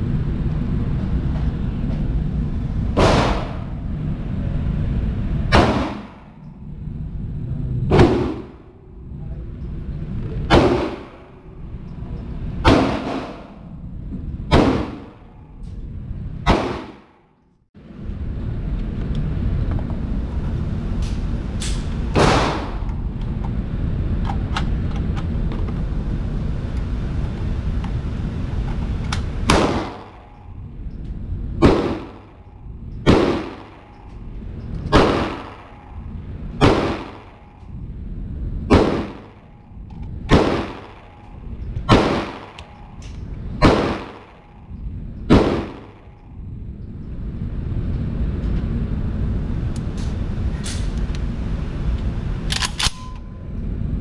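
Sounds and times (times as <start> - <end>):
low rumble: 0.0 - 54.0
gunshots ringing indoors: 3.0 - 3.8, 5.5 - 6.5, 7.9 - 8.8, 10.4 - 11.6, 12.6 - 13.6, 14.4 - 15.5, 16.4 - 17.4, 21.6 - 23.0, 29.4 - 30.6, 31.6 - 37.8, 38.6 - 46.4.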